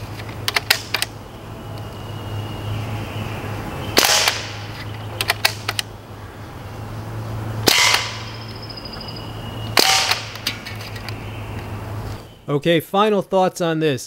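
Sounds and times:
pellet rifle shots: 0:04.0 - 0:05.8, 0:07.6 - 0:08.3, 0:09.8 - 0:10.5.

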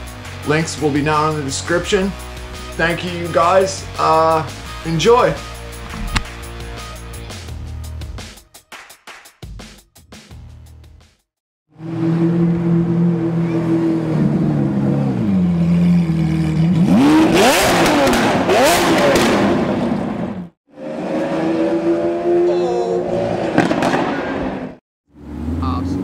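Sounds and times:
exhaust crackling pops: 0:05.8 - 0:06.5, 0:23.6 - 0:24.3
sports car engine revving: 0:11.8 - 0:26.0.

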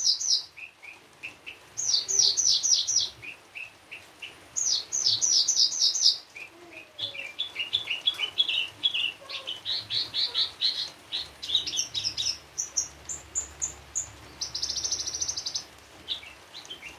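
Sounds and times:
bush lark singing: 0:04.6 - 0:16.9.

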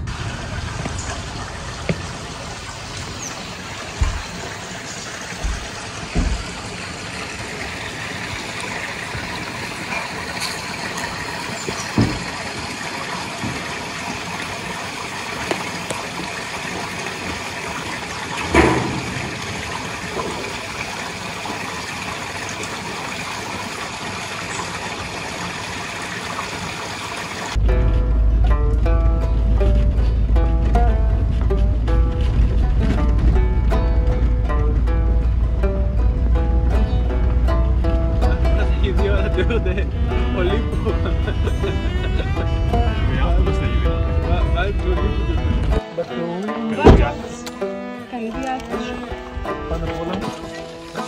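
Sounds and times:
running water rushing: 0:00.0 - 0:51.0
low thumps: 0:01.8 - 0:06.9, 0:11.6 - 0:12.5, 0:27.6 - 0:45.8, 0:46.8 - 0:47.4
loud knock: 0:05.4 - 0:06.6, 0:46.8 - 0:47.2.

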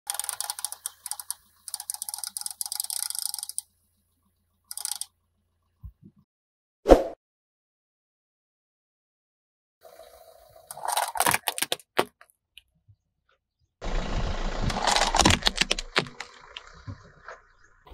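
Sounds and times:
wind-up toy clicking: 0:00.1 - 0:03.7, 0:04.7 - 0:05.1.

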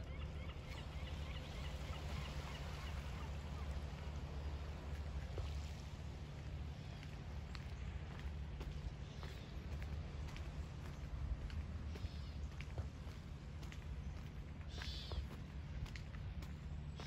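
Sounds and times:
low steady rumble: 0:00.0 - 0:17.0
faint birds chirping: 0:06.6 - 0:17.0.

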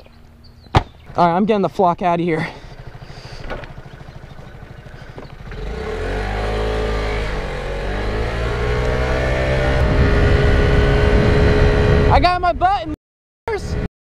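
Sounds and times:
scooter engine accelerating: 0:02.3 - 0:12.2
wind rumbling on microphone: 0:06.6 - 0:13.9.

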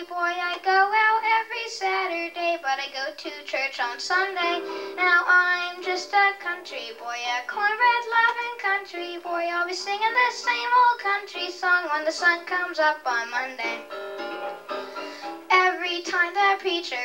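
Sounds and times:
boy singing into microphone: 0:00.0 - 0:13.8, 0:15.5 - 0:17.0
electronic keyboard: 0:04.0 - 0:08.0, 0:09.7 - 0:16.4.

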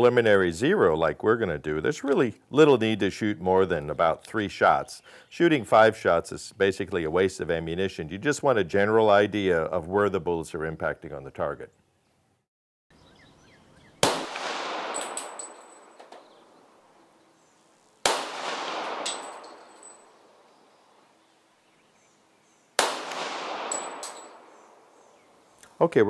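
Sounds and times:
pistol shots echoing: 0:14.0 - 0:16.6, 0:18.0 - 0:20.5, 0:22.8 - 0:25.0
light metallic clinks: 0:14.9 - 0:16.5, 0:18.9 - 0:20.4, 0:23.6 - 0:25.2.

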